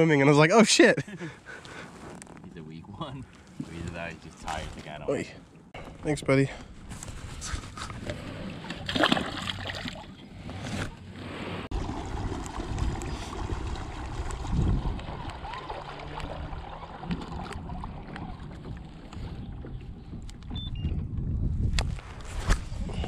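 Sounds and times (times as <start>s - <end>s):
wind rumbling on microphone: 10.1s - 23.0s.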